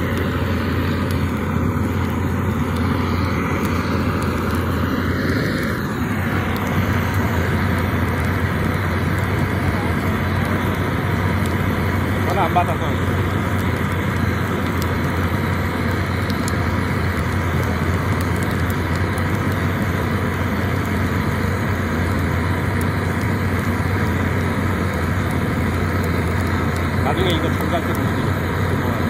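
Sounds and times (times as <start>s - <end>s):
torch flame rushing: 0.0s - 29.0s.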